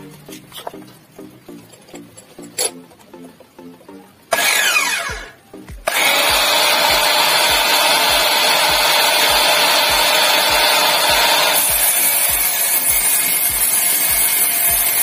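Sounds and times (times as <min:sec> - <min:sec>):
background music with steady beat: 0:00.0 - 0:15.0
miter saw motor running: 0:04.3 - 0:05.3, 0:05.9 - 0:15.0.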